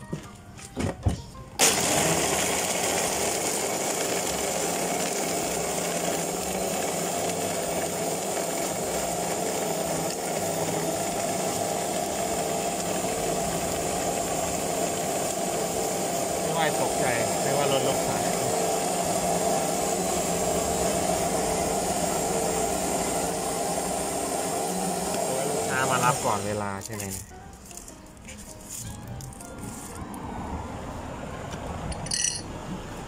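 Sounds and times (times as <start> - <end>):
electric blender running: 1.6 - 27.2.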